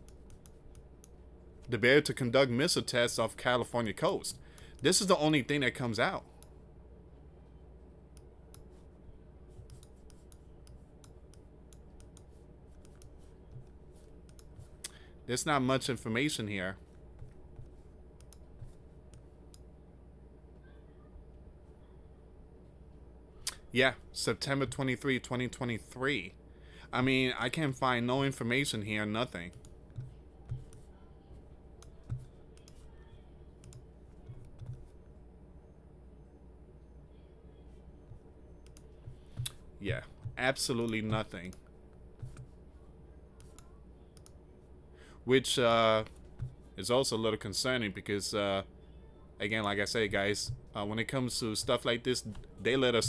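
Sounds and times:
computer mouse clicking: 0:00.0 - 0:01.2, 0:09.6 - 0:14.7, 0:18.2 - 0:19.7, 0:29.5 - 0:30.9, 0:31.8 - 0:32.8, 0:33.6 - 0:34.9, 0:38.1 - 0:39.6, 0:42.2 - 0:42.6, 0:43.4 - 0:44.4
low steady hum: 0:00.0 - 0:53.0.

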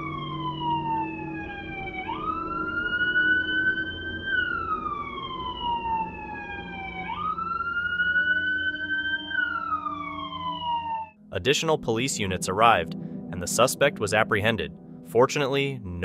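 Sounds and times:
police siren wailing: 0:00.0 - 0:14.7.

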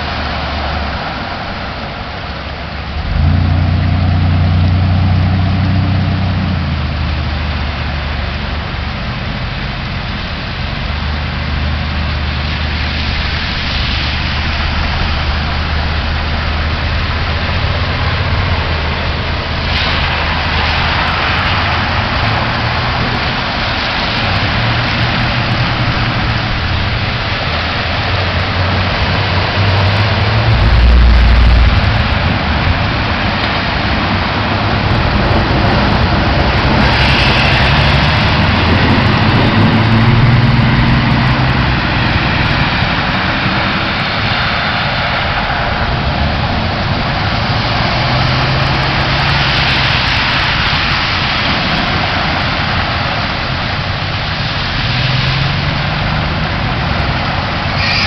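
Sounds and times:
deep rumble: 0:00.0 - 0:57.8
engine hum: 0:00.0 - 0:58.0
heavy rain hiss: 0:00.0 - 0:58.0
running water: 0:00.0 - 0:58.0
vehicles splashing through floodwater: 0:00.0 - 0:58.0.

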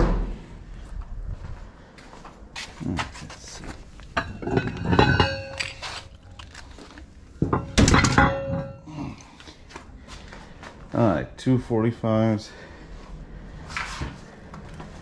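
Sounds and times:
weight plates clanking: 0:04.1 - 0:06.2, 0:07.4 - 0:09.0.

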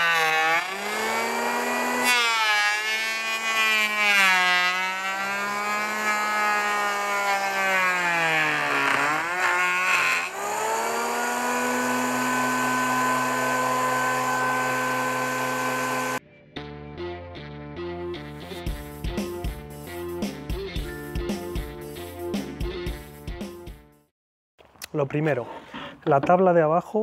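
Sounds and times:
electric planer whining: 0:00.0 - 0:16.2.

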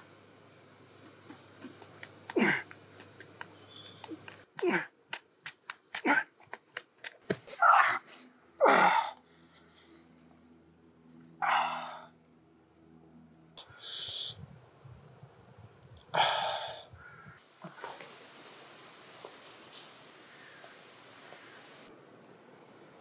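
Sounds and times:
man gasping and exhaling: 0:16.1 - 0:16.9.

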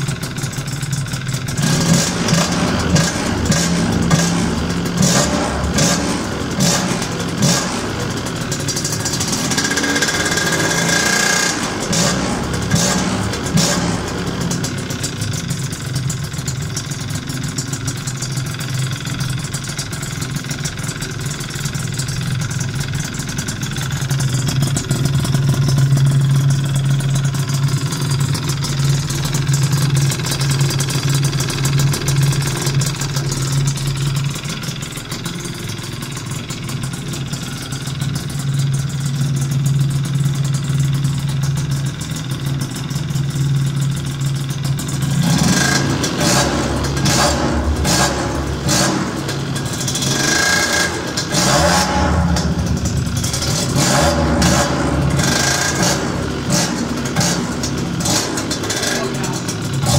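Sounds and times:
scooter engine idling: 0:00.0 - 0:59.9.

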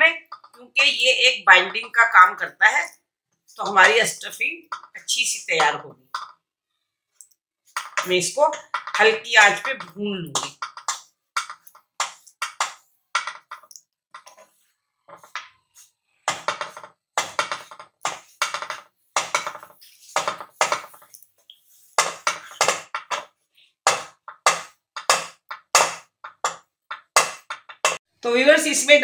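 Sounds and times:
wooden spatula scraping frying pan: 0:14.2 - 0:23.4.

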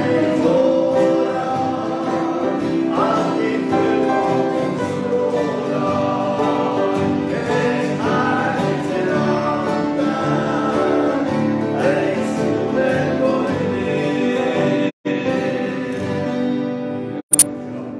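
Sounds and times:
men singing a hymn: 0:00.0 - 0:16.7
strummed acoustic guitars: 0:00.0 - 0:17.9.

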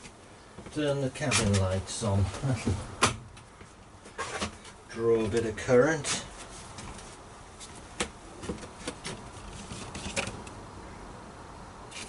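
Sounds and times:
paper rustling: 0:08.4 - 0:10.4.

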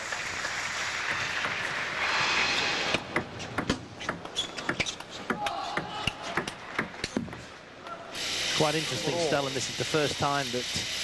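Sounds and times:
table tennis ball clicking: 0:02.9 - 0:05.4.

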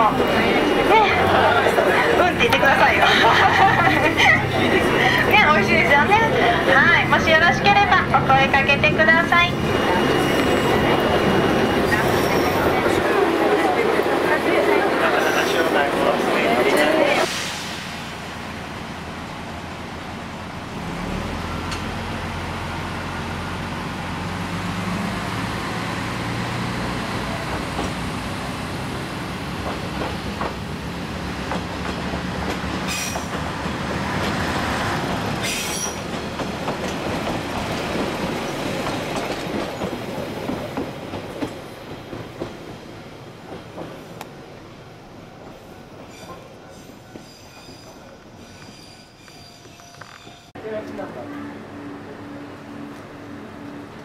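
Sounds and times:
diesel railcar engine: 0:00.0 - 0:54.0
wheels clattering on rails: 0:26.1 - 0:42.8.

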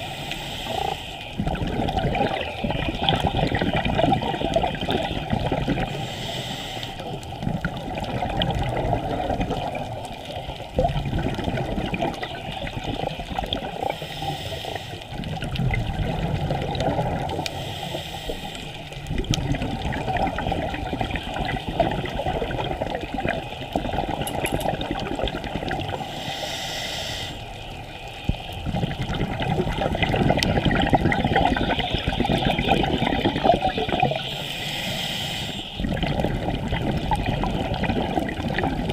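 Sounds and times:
regulator inhalation hiss: 0:00.0 - 0:01.4, 0:05.9 - 0:07.2, 0:13.7 - 0:15.2, 0:17.5 - 0:19.0, 0:26.0 - 0:28.8, 0:34.0 - 0:35.8
exhaled bubbles rumbling underwater: 0:00.0 - 0:26.6, 0:27.4 - 0:34.7, 0:35.6 - 0:38.9.

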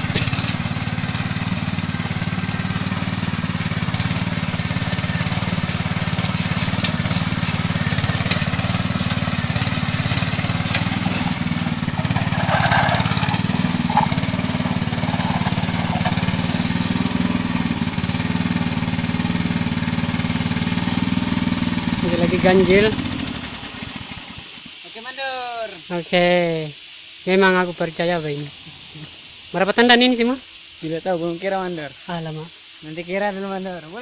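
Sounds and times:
small engine running: 0:00.0 - 0:25.6.

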